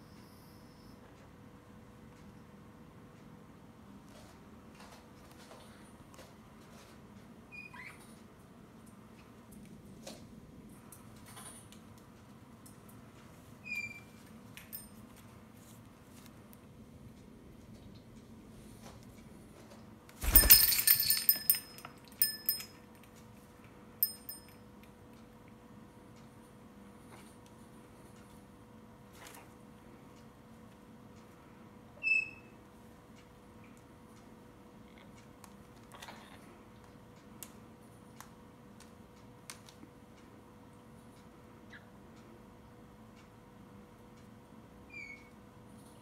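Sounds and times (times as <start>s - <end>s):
faint steady hum: 0.0s - 46.0s
metallic jingling of rope perch: 20.2s - 22.8s, 24.0s - 24.5s.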